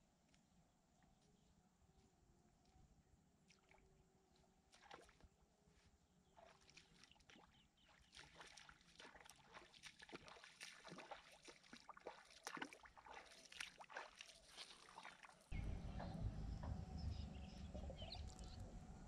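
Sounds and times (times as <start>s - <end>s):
water splashing faintly: 2.5s - 16.8s
small water clicks: 3.4s - 5.3s, 6.3s - 16.7s
low rumble: 15.5s - 19.0s.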